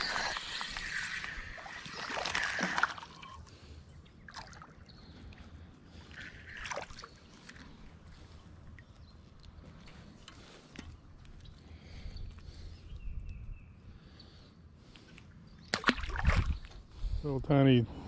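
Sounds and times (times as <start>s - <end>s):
fish splashing: 0.0s - 3.4s.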